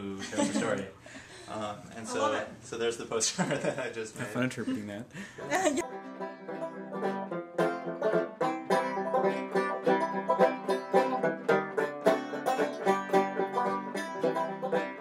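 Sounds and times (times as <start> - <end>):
bluegrass banjo picking: 5.4 - 15.0.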